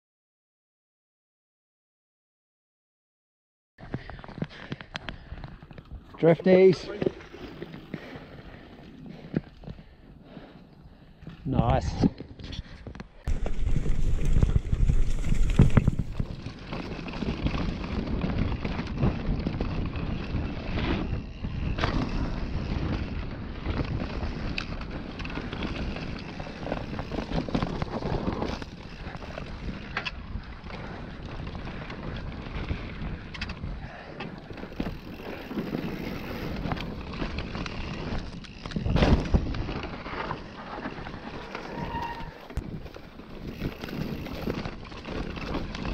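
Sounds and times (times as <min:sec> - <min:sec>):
wind rushing over microphone: 0:13.3 - 0:16.6
bike knocks and rattles: 0:13.3 - 0:30.0, 0:34.5 - 0:41.8.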